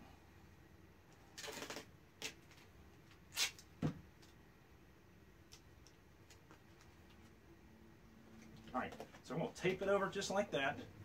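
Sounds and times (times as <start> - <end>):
tape torn from roll: 1.3 - 3.8.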